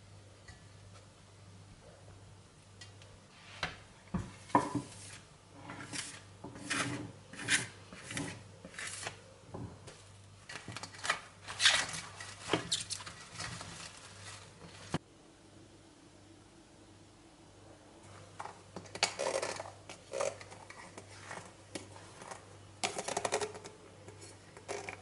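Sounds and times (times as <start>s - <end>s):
flour brushed across countertop: 4.4s - 9.2s.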